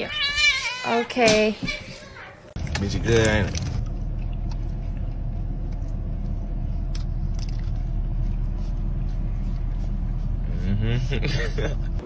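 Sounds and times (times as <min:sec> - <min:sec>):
horse crunching a potato chip: 0:06.8 - 0:09.8.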